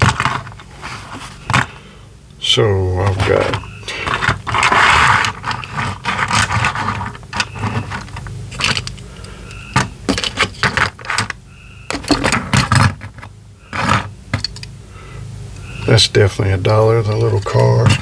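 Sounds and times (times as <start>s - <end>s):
toy cars clicking and scraping: 0.0s - 1.7s, 3.0s - 14.7s, 17.0s - 18.0s.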